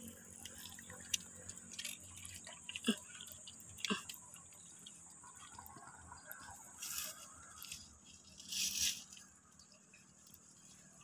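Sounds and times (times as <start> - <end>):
faint scratching: 6.2 - 11.0.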